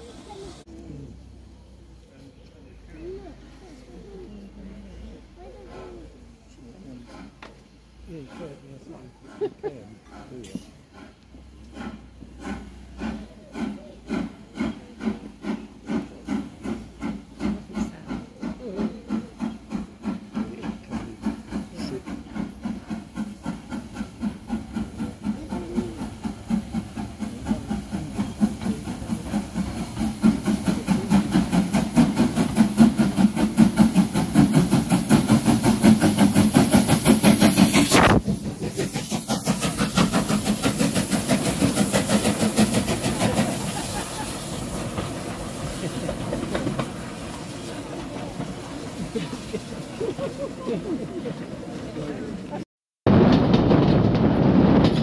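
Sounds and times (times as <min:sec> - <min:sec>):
steam hissing: 0:00.0 - 0:01.8, 0:03.0 - 0:52.4
steam locomotive chuffing: 0:03.0 - 0:55.0.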